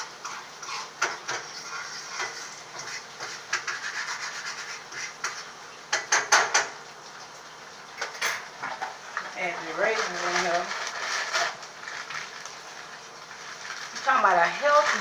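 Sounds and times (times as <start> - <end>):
utensils scraping a pot: 0.0 - 5.5, 9.2 - 15.0.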